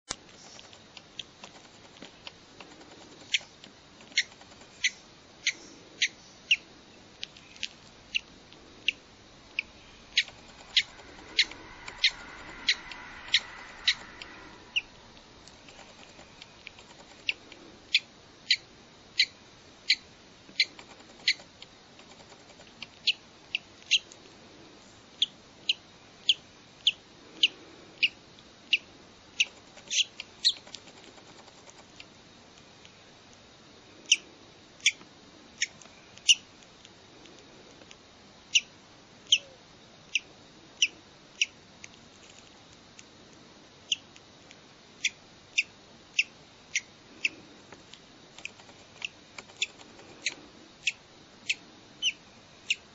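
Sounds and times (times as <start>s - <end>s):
chick peeping: 8.1s - 15.0s.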